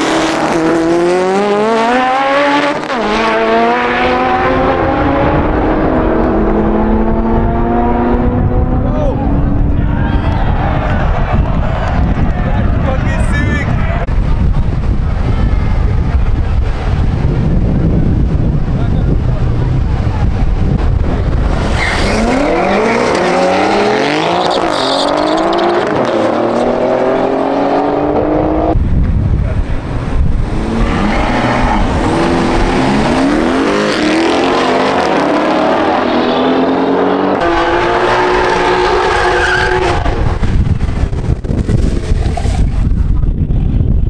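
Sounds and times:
car engine at high revs: 0.0 - 9.8, 19.3 - 28.8, 29.7 - 41.2
drag racing car engines revving: 0.0 - 10.0, 18.6 - 28.8, 29.4 - 41.2.

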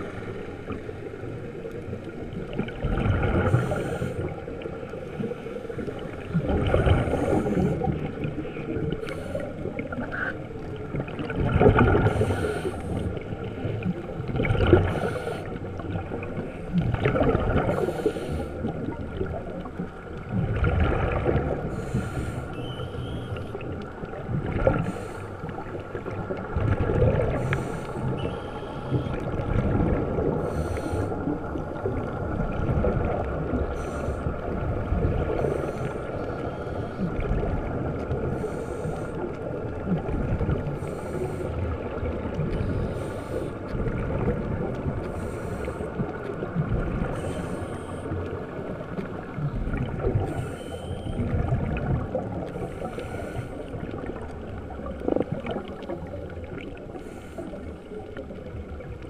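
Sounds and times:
bubbling rumble: 0.0 - 22.6, 23.2 - 59.0
low rumble of water: 0.0 - 59.0
scuba regulator breathing hisses: 12.0 - 13.2, 14.8 - 15.6, 17.7 - 18.7, 21.7 - 23.5, 24.8 - 25.4, 27.4 - 29.2, 30.4 - 31.2, 33.7 - 34.4, 38.3 - 39.2, 42.6 - 43.6, 45.1 - 46.0, 47.0 - 48.1, 50.2 - 51.2, 52.6 - 53.8.

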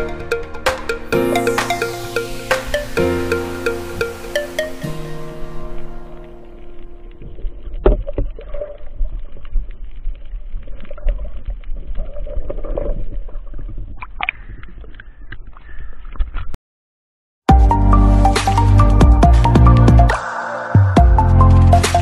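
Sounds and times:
underwater rumble of moving water: 6.4 - 15.7
underwater clicks: 14.0 - 16.5.

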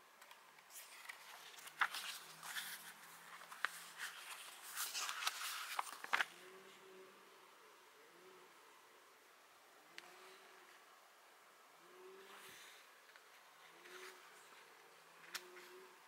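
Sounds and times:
paper pages being flipped: 0.6 - 6.5, 13.1 - 15.7.

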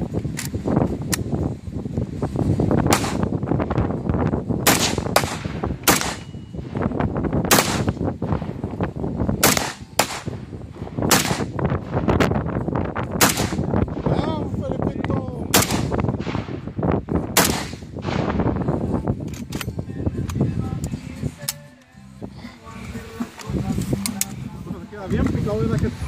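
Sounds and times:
rifle shots: 2.9 - 3.4, 4.6 - 6.4, 7.5 - 8.6, 9.4 - 10.4, 11.0 - 12.0, 13.2 - 14.0, 15.5 - 16.6, 17.3 - 18.6.

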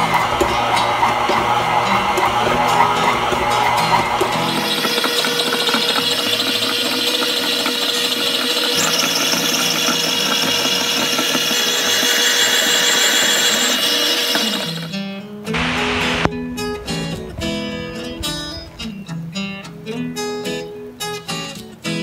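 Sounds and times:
stand mixer motor whirring: 0.0 - 14.9
high hiss: 15.6 - 19.8.

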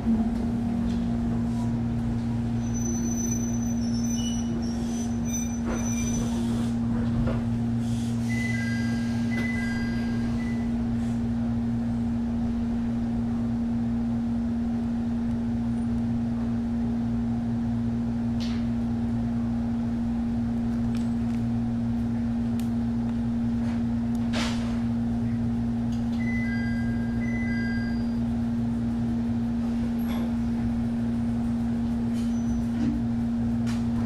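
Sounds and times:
train equipment hum: 0.0 - 34.0
two-note electronic door chime: 26.2 - 28.2.

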